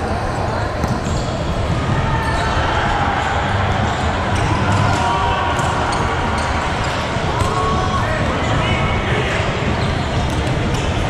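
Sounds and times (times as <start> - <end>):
volleyballs hit and bouncing: 0.7 - 1.8, 3.2 - 11.0
sneakers squeaking on court: 0.8 - 2.6, 9.6 - 11.0.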